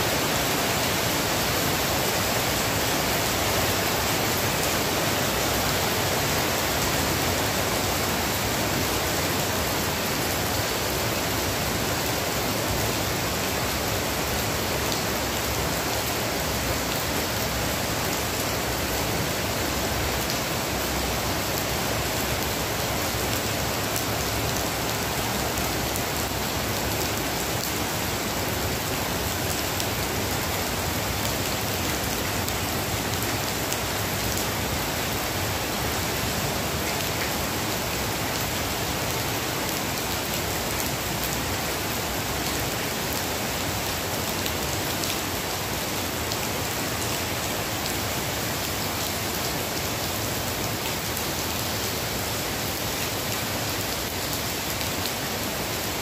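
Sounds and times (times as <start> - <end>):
heavy rain on paving and leaves: 0.0 - 56.0.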